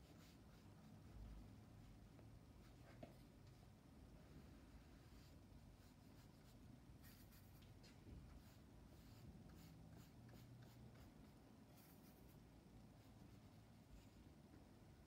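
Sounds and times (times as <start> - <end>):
paintbrush scratching on paper: 0.0 - 1.5, 4.9 - 14.3.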